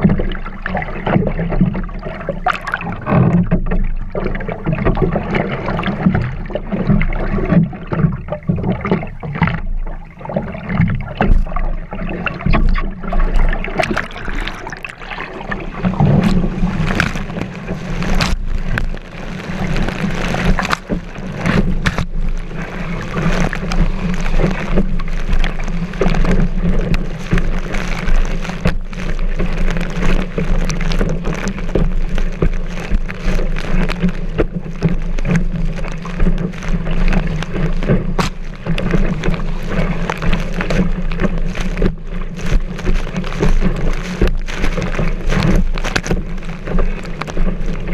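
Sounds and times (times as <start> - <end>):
water sloshing against board: 0.0 - 47.9.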